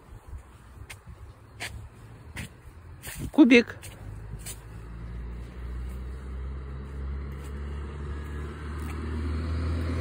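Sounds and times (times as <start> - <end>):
vehicle engine low hum: 0.0 - 10.0.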